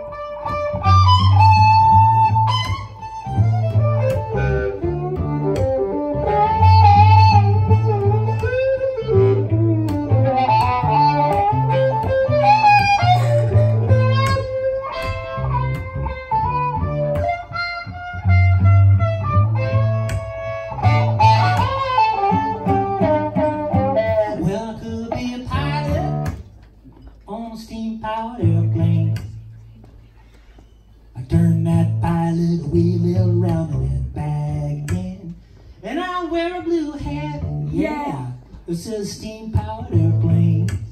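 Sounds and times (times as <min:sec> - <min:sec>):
electric violin sliding lead: 0:00.0 - 0:24.4
cello bass line: 0:00.0 - 0:26.4, 0:28.3 - 0:29.6, 0:31.2 - 0:35.4, 0:36.2 - 0:40.9.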